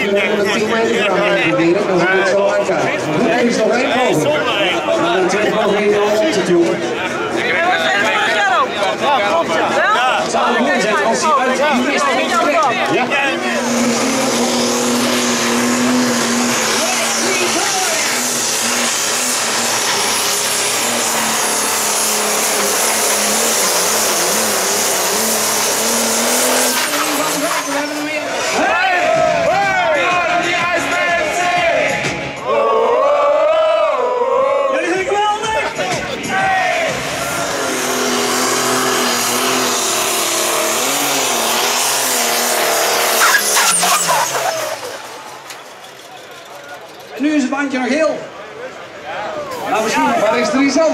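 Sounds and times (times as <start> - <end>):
diesel engine running at full load: 0.0 - 32.4, 35.2 - 50.9.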